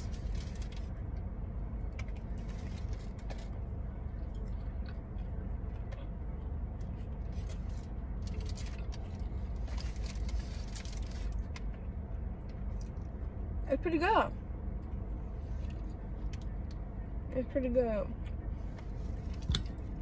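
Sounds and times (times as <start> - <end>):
car idling hum: 0.0 - 20.0
crunching and chewing: 1.9 - 6.1, 6.8 - 11.8.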